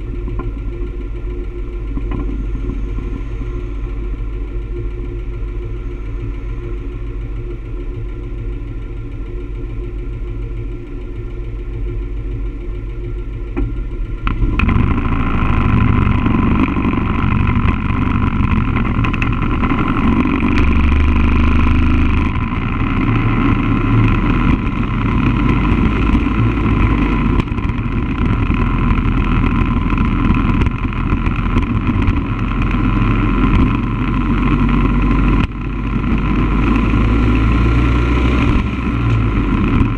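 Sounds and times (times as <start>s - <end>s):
vehicle engine idling: 0.0s - 39.9s
wind and road noise: 0.0s - 39.9s
vehicle pulling away: 14.3s - 39.9s.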